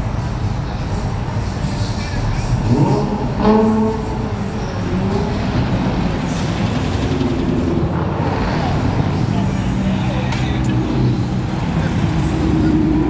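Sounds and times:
cars driving slowly past: 0.0 - 13.0
engine note rising: 2.2 - 13.0.

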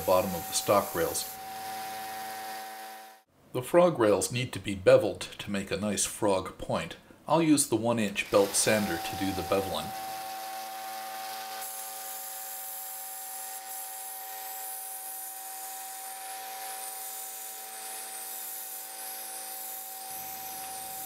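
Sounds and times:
metal grinding hiss: 0.0 - 3.0, 8.2 - 21.0.

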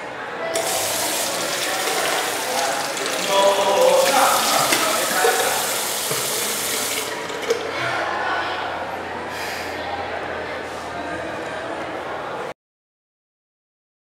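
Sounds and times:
tap water running into sink: 0.6 - 7.8.

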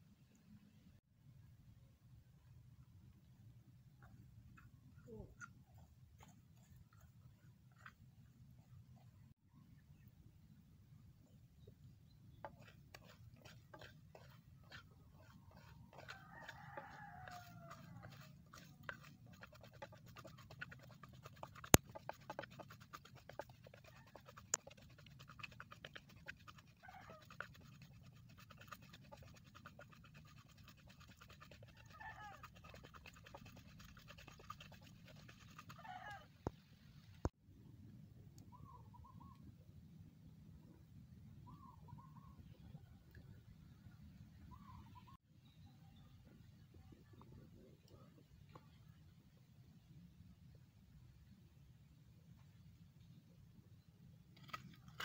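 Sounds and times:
grains and wood crackling: 12.5 - 28.0.

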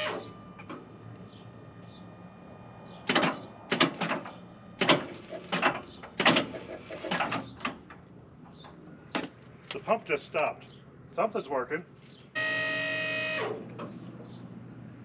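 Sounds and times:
hydraulic pump whine: 0.0 - 9.2, 12.4 - 14.2
hydraulic clunks and hisses: 3.1 - 7.9.

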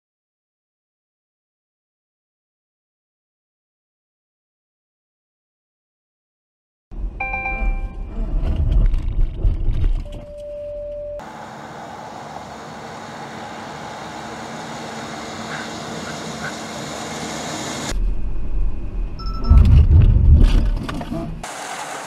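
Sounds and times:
car road and engine rumble: 6.9 - 22.0
warning beep: 7.2 - 8.2, 19.2 - 19.7
wind and tyre hiss: 11.2 - 18.9, 21.4 - 22.0.

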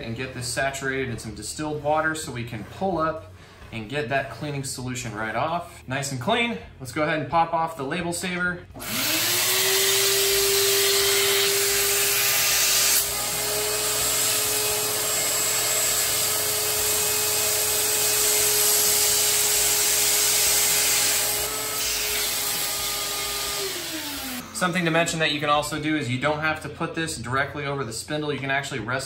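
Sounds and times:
shop vac motor whining: 8.8 - 25.3.

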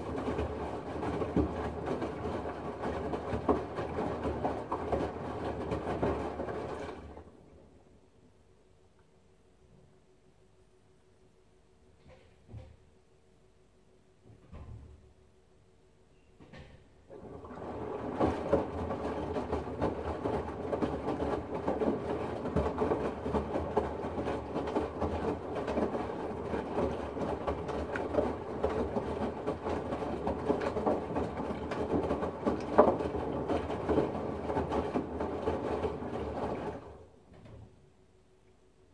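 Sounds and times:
washing machine drum tumbling: 0.0 - 7.3, 16.5 - 37.8
water sloshing: 17.1 - 37.0
small irregular thuds: 17.6 - 37.7.

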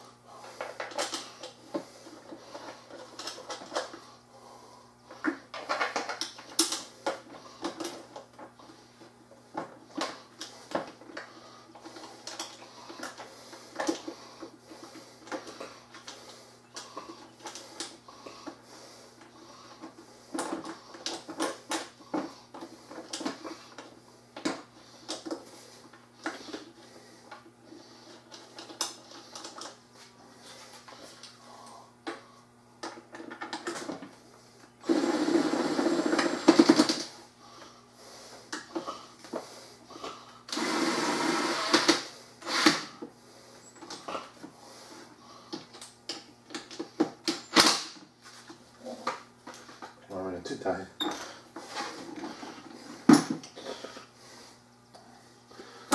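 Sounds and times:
hard plastic parts clicking and rattling: 5.1 - 8.6.

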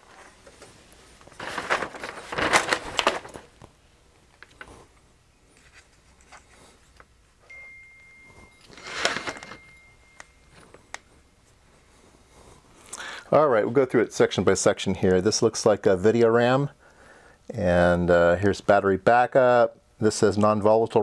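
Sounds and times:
circuit board rustling and scraping: 4.4 - 7.1, 8.4 - 9.8.

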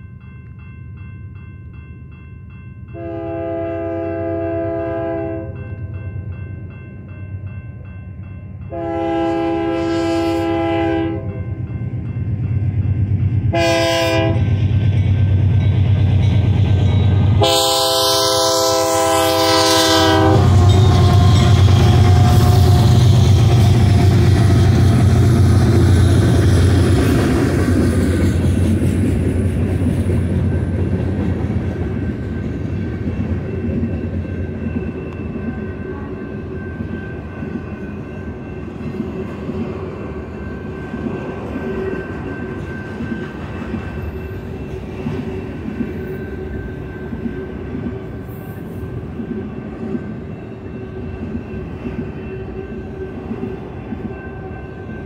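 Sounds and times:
diesel locomotives rumbling past: 0.0 - 55.0
train horn blasts: 3.0 - 5.6, 8.7 - 11.5, 13.5 - 14.6, 17.3 - 23.2.

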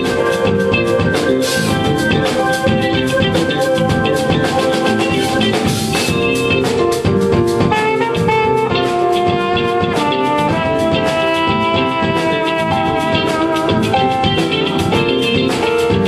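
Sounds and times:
drums steady beat: 0.0 - 16.0
jazz band playing: 0.0 - 16.0
trumpet melody: 7.6 - 15.6.

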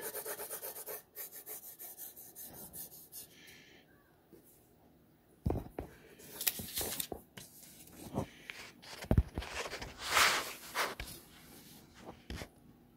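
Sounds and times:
paper rustling on wooden table: 6.3 - 11.2.

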